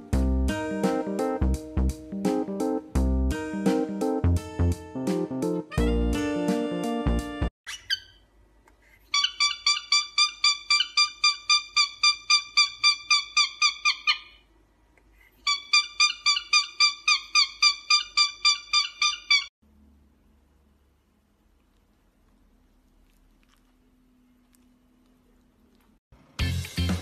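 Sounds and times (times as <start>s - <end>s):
cockatiel chirping: 7.7s - 8.2s, 9.1s - 14.4s, 15.5s - 19.5s.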